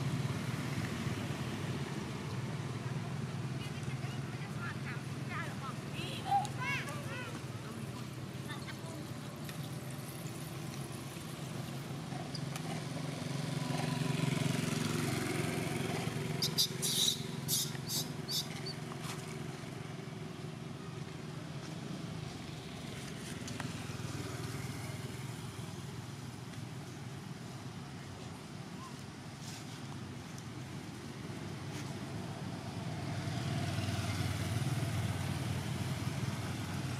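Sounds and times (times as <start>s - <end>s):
vehicle engine passing by: 0.0s - 20.3s, 31.1s - 36.9s.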